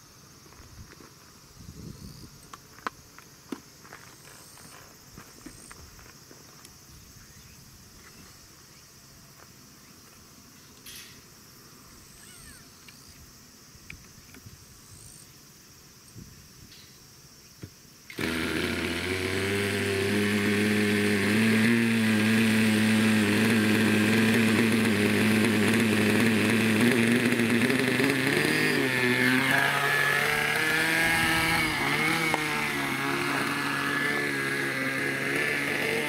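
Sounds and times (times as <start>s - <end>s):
model helicopter engine idling: 18.1s - 36.0s.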